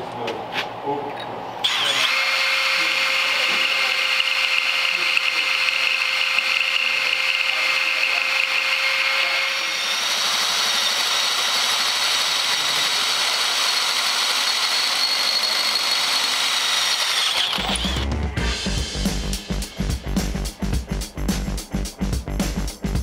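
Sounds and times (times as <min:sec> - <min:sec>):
power tool whining on steel: 0:01.6 - 0:18.1.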